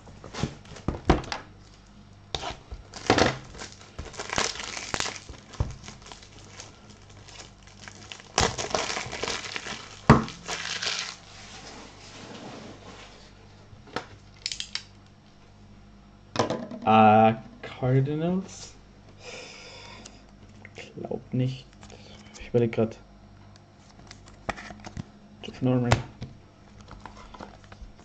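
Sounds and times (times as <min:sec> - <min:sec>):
plastic wrappers crinkling: 0:00.2 - 0:11.4, 0:26.7 - 0:28.0.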